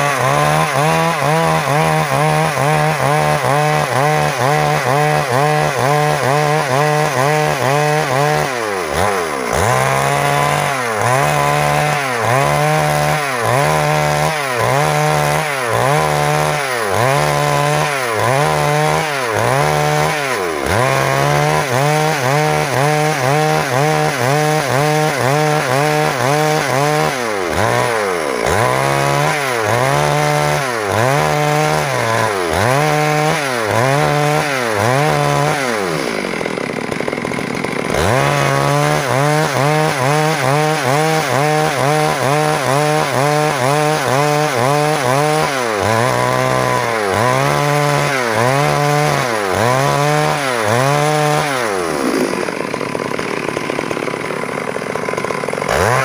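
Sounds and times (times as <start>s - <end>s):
chainsaw cutting a log: 0.0s - 56.0s.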